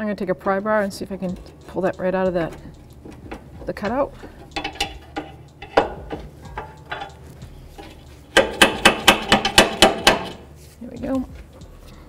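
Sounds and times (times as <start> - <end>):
sharp metal clanks: 1.3 - 10.4
metal bar clinking: 2.4 - 7.2.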